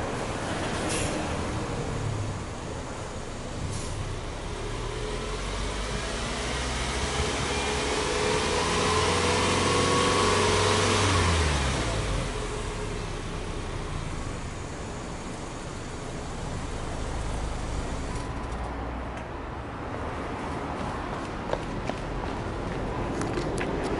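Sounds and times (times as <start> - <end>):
car engine revving: 4.1 - 18.3.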